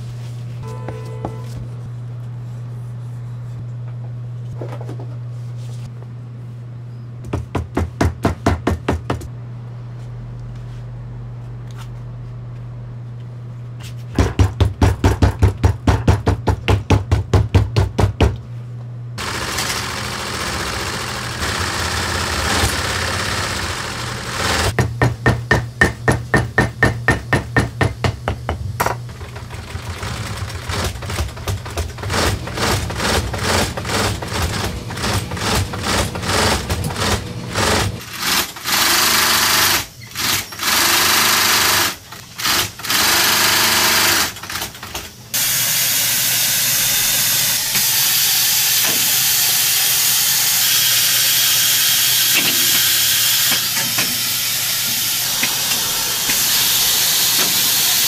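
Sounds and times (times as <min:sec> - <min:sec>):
sewing machine stitching leather: 0:19.2 - 0:24.8, 0:29.1 - 0:44.8.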